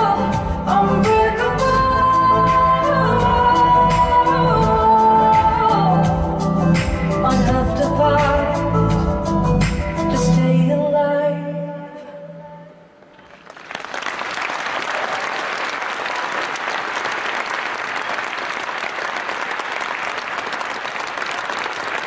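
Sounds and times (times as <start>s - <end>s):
audience applause: 13.2s - 22.0s.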